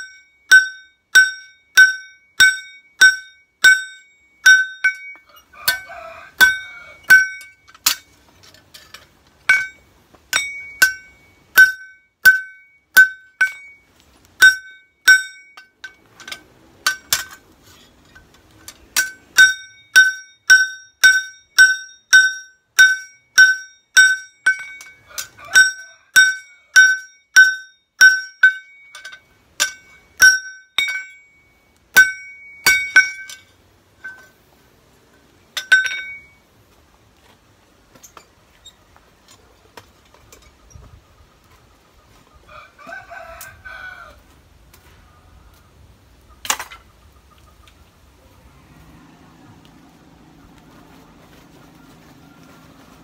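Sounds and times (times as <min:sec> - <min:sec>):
hammer striking blade on anvil: 0:00.0 - 0:08.1, 0:09.5 - 0:13.8, 0:14.4 - 0:17.4, 0:19.0 - 0:31.4, 0:32.0 - 0:34.4, 0:35.6 - 0:36.4.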